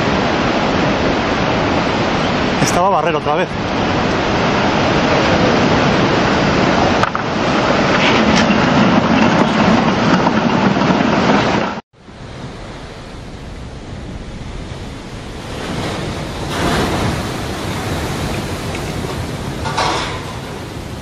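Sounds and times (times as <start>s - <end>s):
waves crashing against seawall: 0.0s - 9.6s, 14.4s - 21.0s
heavy surf: 0.0s - 21.0s
wind: 0.0s - 21.0s.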